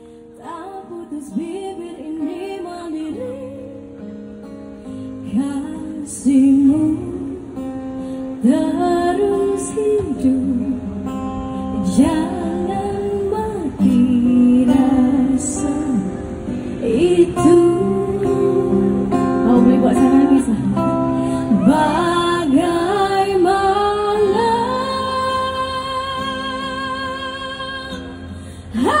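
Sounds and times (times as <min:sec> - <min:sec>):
acoustic guitar: 0:00.0 - 0:29.0
woman singing into microphone: 0:00.0 - 0:29.0.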